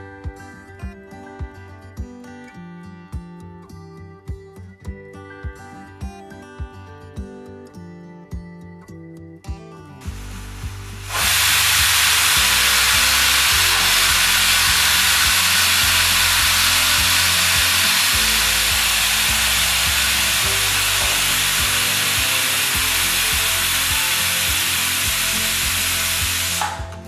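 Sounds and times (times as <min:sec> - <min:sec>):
pressure cooker steam hissing: 0:10.0 - 0:27.0.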